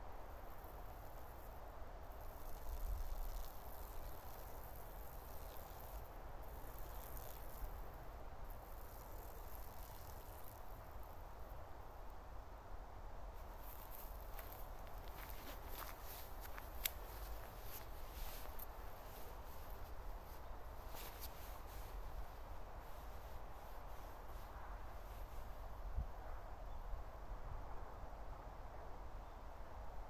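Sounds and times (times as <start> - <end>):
low wind rumble on microphone: 0.0 - 30.0
small clicks and rustles: 0.4 - 11.2, 13.4 - 22.3.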